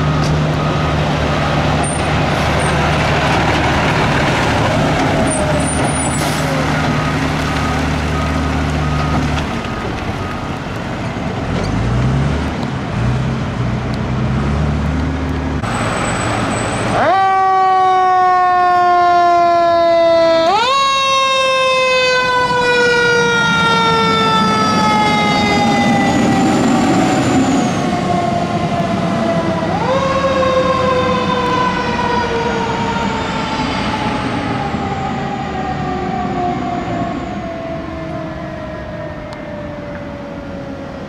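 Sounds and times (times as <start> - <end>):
fire engine siren wailing: 0.0 - 11.9, 15.6 - 41.0
truck engine rumble: 0.0 - 41.0.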